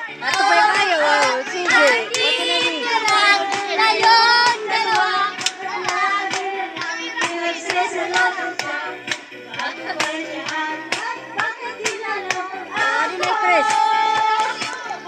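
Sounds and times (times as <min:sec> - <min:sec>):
backing music: 0:00.0 - 0:15.0
people singing together: 0:00.0 - 0:15.0
hand claps: 0:00.2 - 0:15.0.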